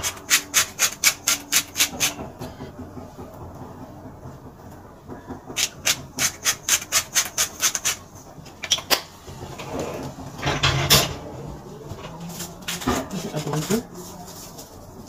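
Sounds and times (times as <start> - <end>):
clattering: 8.5 - 11.4.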